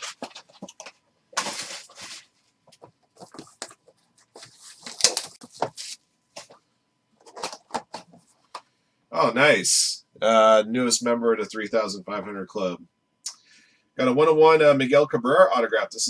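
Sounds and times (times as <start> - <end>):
wrappers crinkling: 0.0 - 6.6.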